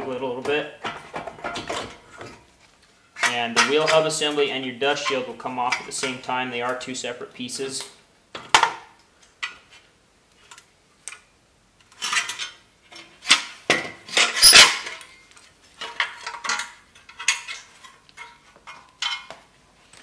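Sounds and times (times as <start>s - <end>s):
metal parts clanking and rattling: 0.8s - 2.4s, 11.9s - 15.2s, 15.8s - 19.4s.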